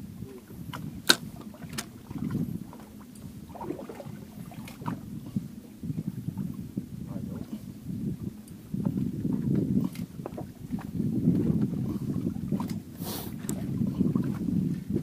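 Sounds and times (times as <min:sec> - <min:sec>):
low rumble of water and wind: 0:00.0 - 0:15.0
sharp knocks on boat: 0:00.7 - 0:02.0.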